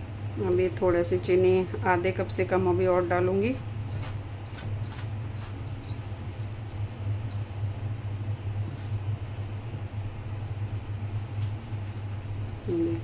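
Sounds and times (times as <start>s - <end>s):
steady low hum: 0.0s - 13.0s
hand mixing flour in steel bowl: 1.0s - 5.7s.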